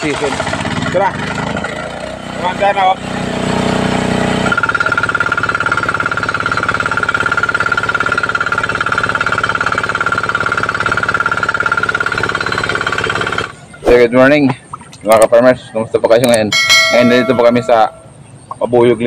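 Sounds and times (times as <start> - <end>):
diesel engine running: 0.0 - 13.8.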